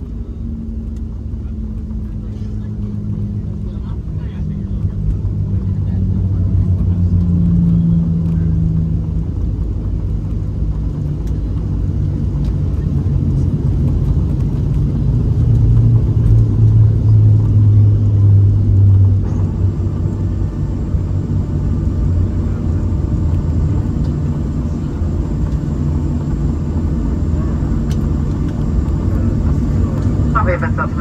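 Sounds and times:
aircraft engines low rumble: 0.0 - 31.0.

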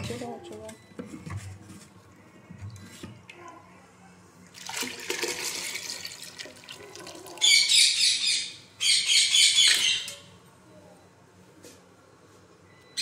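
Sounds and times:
liquid sloshing: 4.5 - 7.4.

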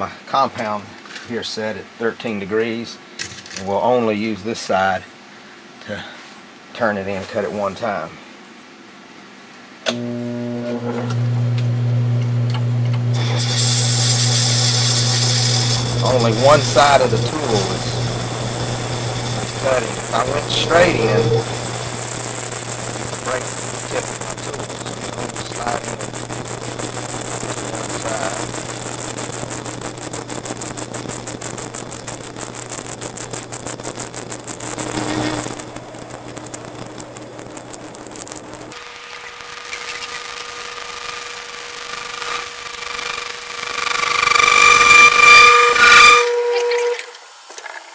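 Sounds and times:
metal lathe cutting squeal: 13.2 - 38.3, 44.3 - 47.0
electric motor humming: 13.2 - 38.8.

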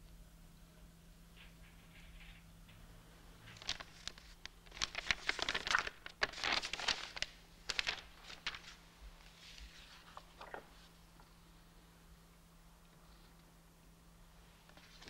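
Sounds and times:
paper rustling and crinkling: 3.4 - 11.0, 14.7 - 15.0.

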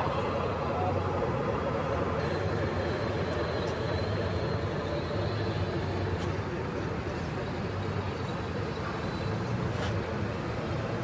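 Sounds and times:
electric motors droning: 2.2 - 11.0.

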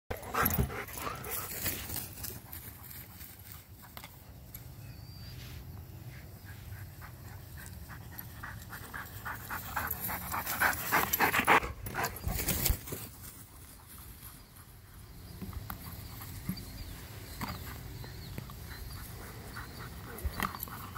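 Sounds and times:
dog panting: 0.1 - 2.0, 6.4 - 12.3, 18.0 - 20.9.

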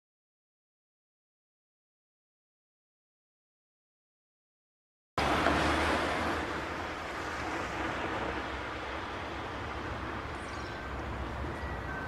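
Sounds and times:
car driving past: 5.2 - 12.0.

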